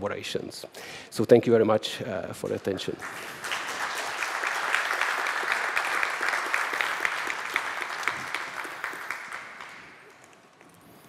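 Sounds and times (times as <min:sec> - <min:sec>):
audience applauding: 0:02.5 - 0:10.7.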